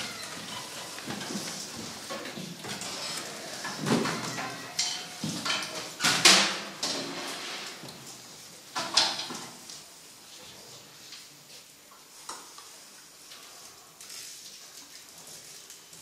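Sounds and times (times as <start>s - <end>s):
clicks and knocks of instruments: 0.5s - 8.0s.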